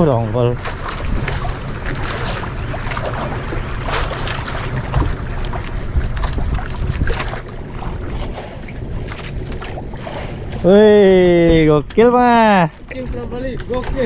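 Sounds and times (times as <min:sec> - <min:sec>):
boat engine hum: 0:00.0 - 0:14.0
water noise: 0:00.0 - 0:14.0
wind: 0:00.0 - 0:14.0.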